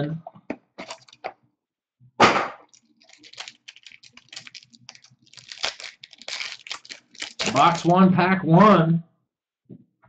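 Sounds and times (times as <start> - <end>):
foil wrapper crinkling: 0.8 - 1.2, 2.6 - 8.0
card packaging ripping: 2.7 - 7.9.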